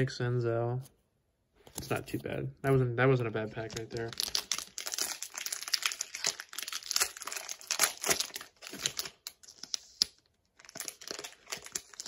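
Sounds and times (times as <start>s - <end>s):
card pack wrapper crinkling and tearing: 3.5s - 12.0s.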